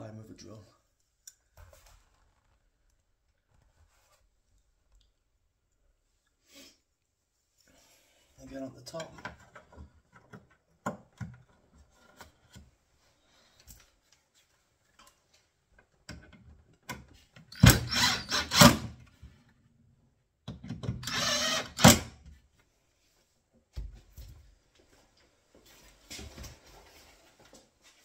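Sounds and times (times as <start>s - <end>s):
cordless drill driving screws: 17.5s - 19.0s, 21.0s - 22.1s.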